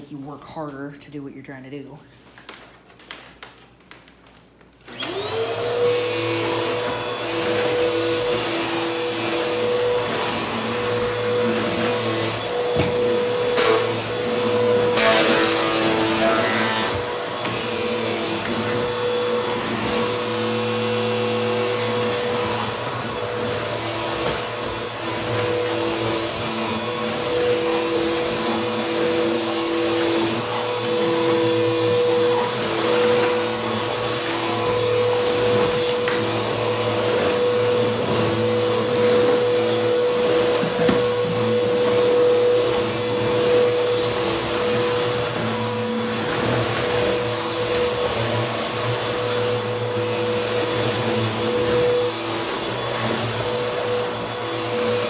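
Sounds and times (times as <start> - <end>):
vacuum cleaner motor humming: 4.8 - 55.0.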